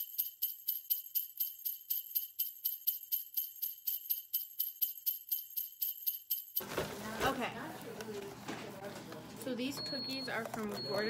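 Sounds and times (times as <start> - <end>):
sleigh bells jingling: 0.0 - 6.6.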